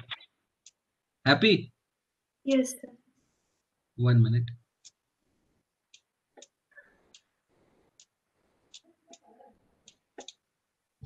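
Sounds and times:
mouse and keyboard clicking: 9.9 - 10.4.

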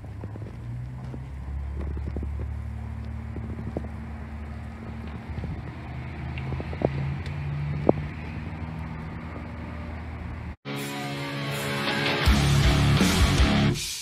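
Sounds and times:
engine idling: 0.0 - 5.8.

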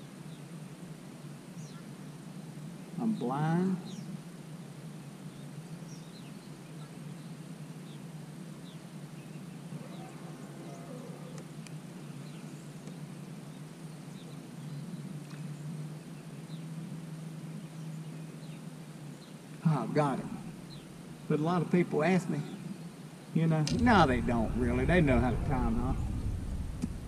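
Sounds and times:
steady low hum: 23.7 - 27.0.

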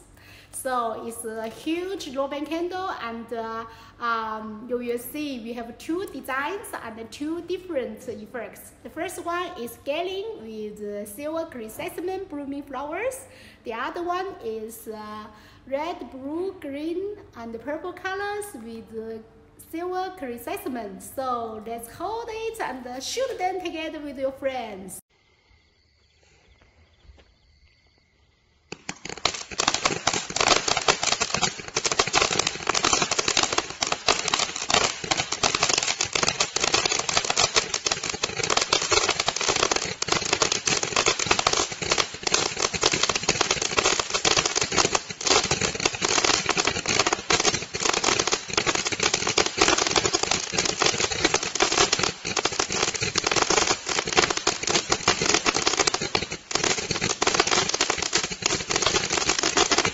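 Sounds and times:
roman candle firing rapidly: 28.7 - 59.9.

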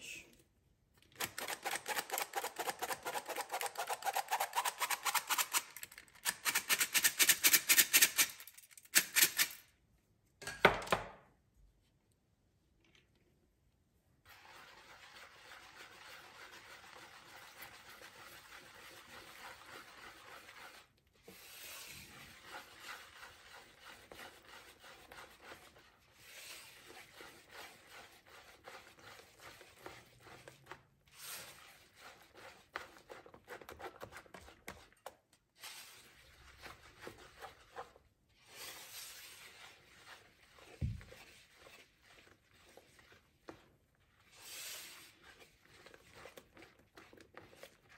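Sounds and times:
whisk scraping in bowl: 14.2 - 35.0, 35.6 - 47.9.

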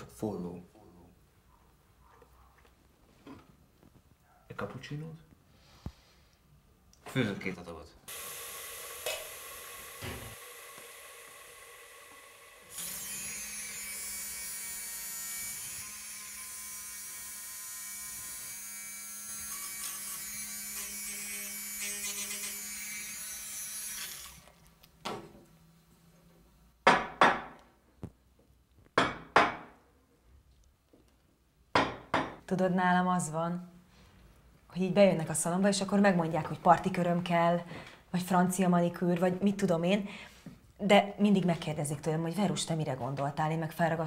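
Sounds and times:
espresso machine steam hiss: 8.1 - 12.7
espresso machine hum: 8.1 - 13.0.

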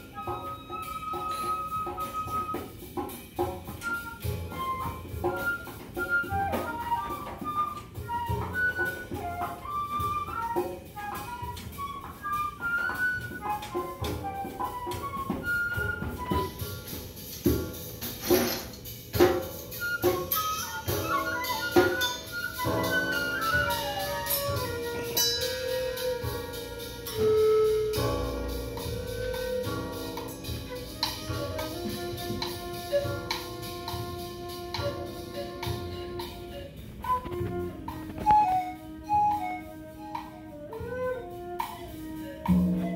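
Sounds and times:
wind instrument notes: 0.0 - 42.9
percussion taps: 30.2 - 38.7.

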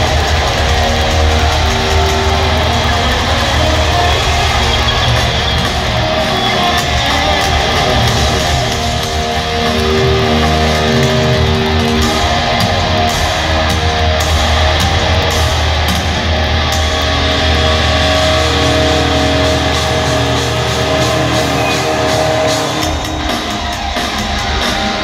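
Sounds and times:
heavy metal band playing: 0.0 - 25.0.

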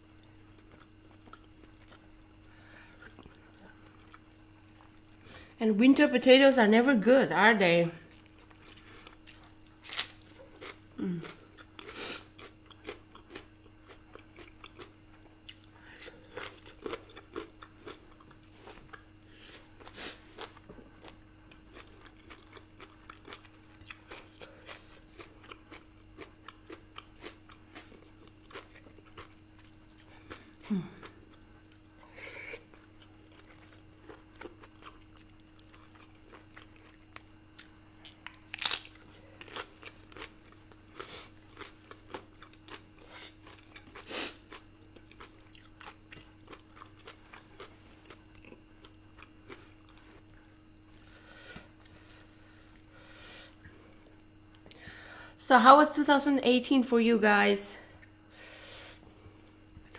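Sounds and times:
faint background hum: 0.0 - 59.9
person chewing food: 0.1 - 5.6, 8.1 - 54.9
low throat sound: 11.0 - 11.3.

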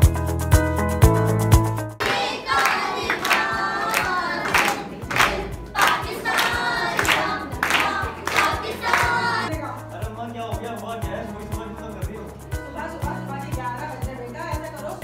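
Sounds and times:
girls singing together: 2.0 - 9.5
hand claps: 2.0 - 9.5.

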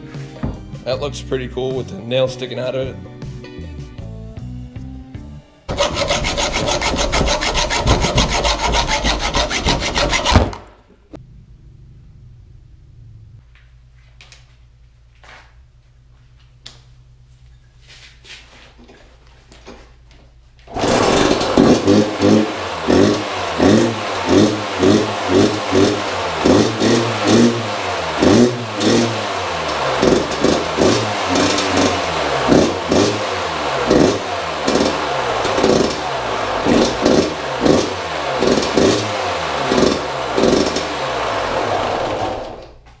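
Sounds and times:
dirt bike engine revving: 5.7 - 13.6, 20.7 - 42.9.

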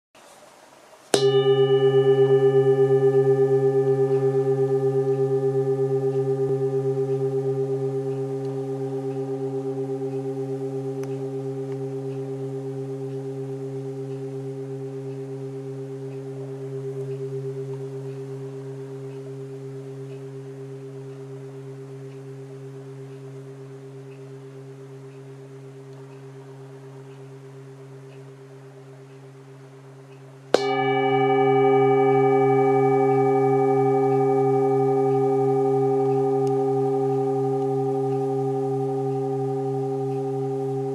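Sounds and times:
singing bowl ringing: 1.1 - 28.9, 29.9 - 40.9
mallet striking singing bowl: 1.2 - 18.6, 30.5 - 40.9.

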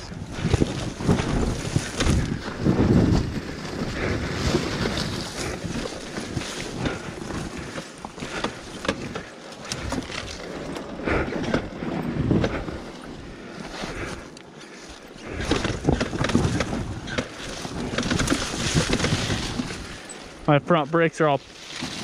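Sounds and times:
wind noise on microphone: 0.0 - 9.2, 11.0 - 12.9, 15.2 - 20.1
dirt bike engine: 0.0 - 22.0
brush swishing against bike: 0.4 - 10.6
clicks and knocks from rocks: 15.2 - 20.0.

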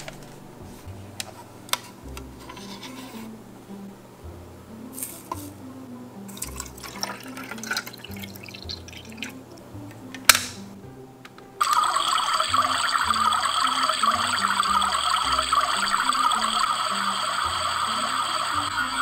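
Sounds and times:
powder spooned into toy kettle: 6.3 - 9.4
water pouring: 6.3 - 9.4, 11.6 - 19.0
kettle lid clicking shut: 10.2 - 10.6
toy kettle bubbling sound effect: 11.6 - 19.0.

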